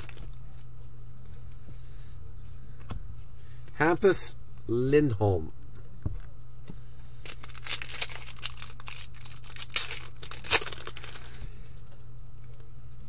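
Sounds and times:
wrapper ripping: 0.0 - 0.4, 7.2 - 11.4
wrapper crinkling: 0.0 - 0.7, 7.2 - 11.4.

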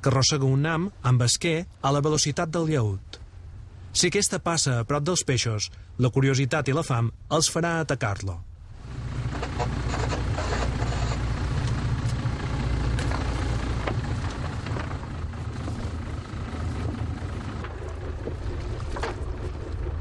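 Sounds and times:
boat engine rumble: 8.4 - 20.0.

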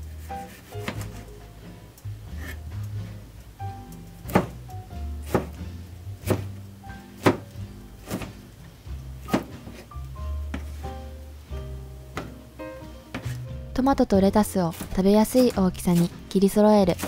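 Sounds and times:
knife slicing a tomato: 0.0 - 1.4, 2.3 - 3.1, 4.2 - 4.6, 5.2 - 6.5, 7.2 - 8.4, 9.2 - 9.9, 13.1 - 13.6, 14.7 - 17.0
background music: 0.0 - 17.0.

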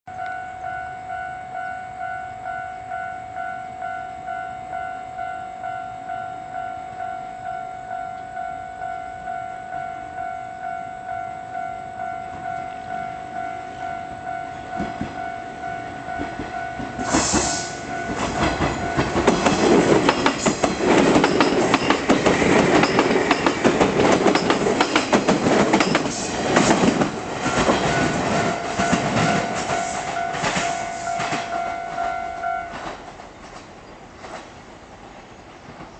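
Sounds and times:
level crossing alarm ringing: 0.1 - 25.2, 25.8 - 33.0
electric train passing: 0.2 - 35.9
train wheels clacking on rails: 14.7 - 34.6.

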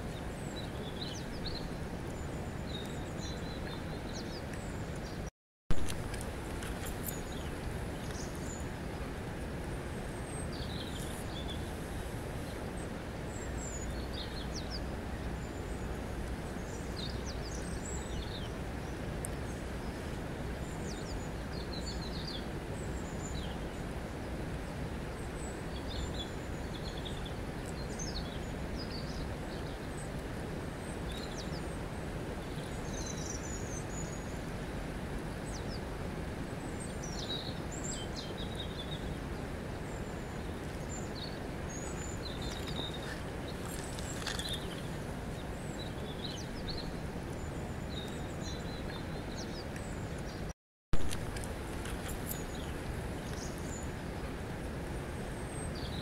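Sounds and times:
river water over stones: 0.0 - 56.0
small birds chirping: 39.8 - 50.5, 51.3 - 54.1.

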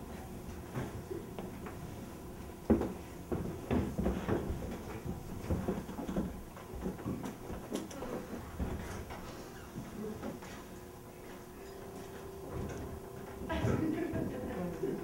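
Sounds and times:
knocks and thumps: 2.7 - 7.6.

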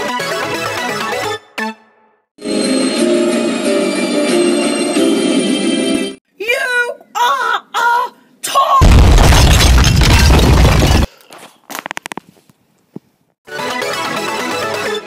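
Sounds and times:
explosion-like boom: 8.8 - 11.1.

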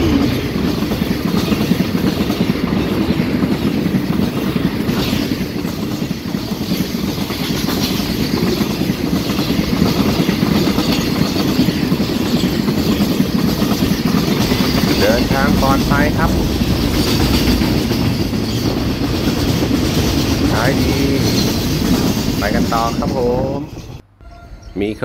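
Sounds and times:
train wheels rumbling and clattering: 0.0 - 24.0.

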